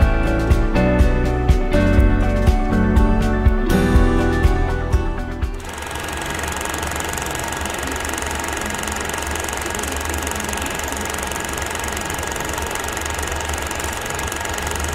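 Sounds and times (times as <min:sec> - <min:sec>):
music: 0:00.0 - 0:05.8
film projector clattering: 0:05.6 - 0:14.9.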